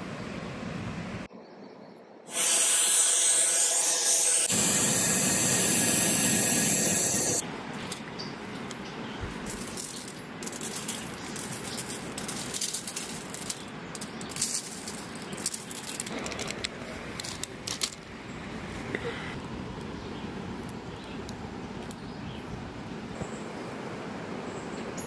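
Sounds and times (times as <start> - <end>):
plastic spice shaker rattling: 9.6 - 16.6.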